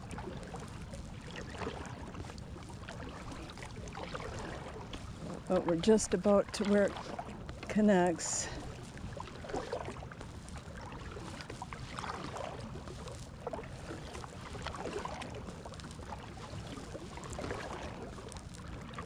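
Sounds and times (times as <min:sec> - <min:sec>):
kayak paddle splashing water: 0:00.0 - 0:19.0.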